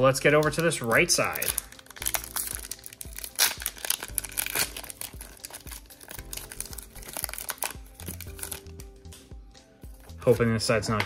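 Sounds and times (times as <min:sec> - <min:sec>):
faint background music: 0:00.0 - 0:11.0
foil wrapper crinkling and tearing: 0:00.2 - 0:08.8.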